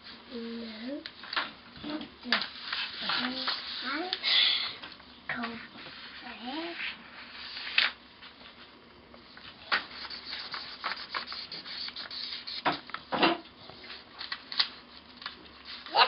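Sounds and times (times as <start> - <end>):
crayon scribbling on paper: 9.9 - 12.7.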